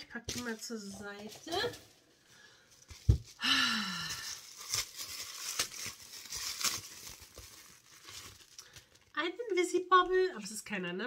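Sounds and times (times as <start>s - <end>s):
plastic bag crinkling: 0.0s - 9.5s
thump: 3.0s - 3.3s.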